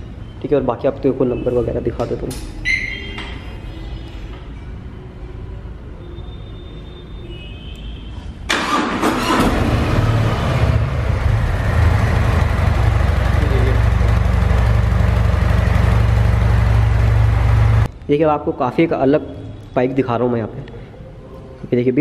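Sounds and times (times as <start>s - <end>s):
motorcycle starter cranking: 8.5s - 9.9s
motorcycle engine idling: 11.2s - 17.8s.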